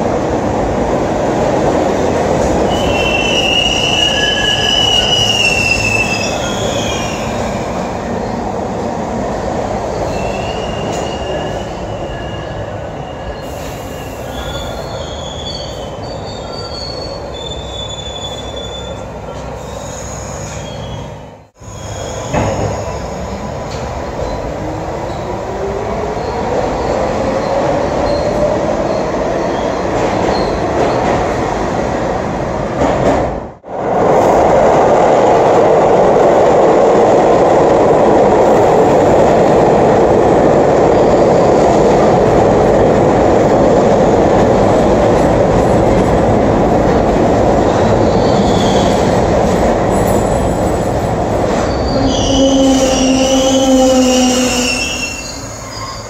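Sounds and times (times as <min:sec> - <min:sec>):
subway train rumbling on rails: 0:00.0 - 0:56.0
train brakes squealing: 0:02.7 - 0:07.6, 0:10.0 - 0:23.2, 0:48.0 - 0:49.1, 0:51.6 - 0:56.0.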